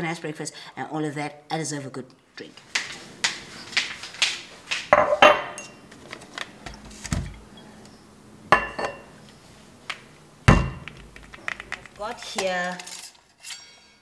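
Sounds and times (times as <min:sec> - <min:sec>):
glass bottles knocking and clinking: 0:05.0 - 0:05.8, 0:08.5 - 0:09.1.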